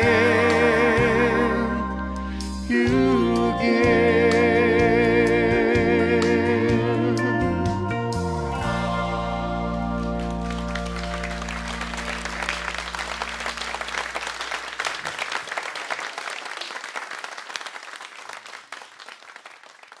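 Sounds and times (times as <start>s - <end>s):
country song chord ringing: 6.6s - 13.8s
audience applauding: 9.7s - 20.0s.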